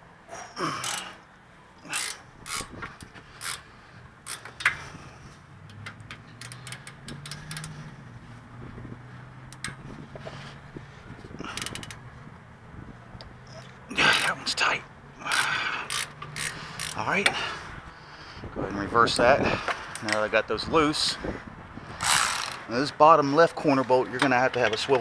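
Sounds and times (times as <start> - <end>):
hand ratchet clicking: 0.8 - 1.2, 1.9 - 4.9, 5.6 - 7.8, 9.5 - 9.8, 11.5 - 12.0, 15.2 - 17.4, 22.0 - 22.6.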